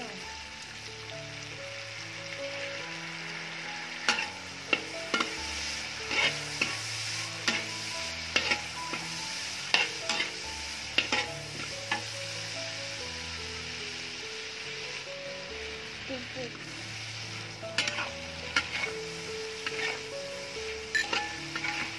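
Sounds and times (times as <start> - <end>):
shrimp sizzling in oil: 0.0 - 21.9
metal spatula scraping wok: 3.8 - 12.5, 16.6 - 21.9.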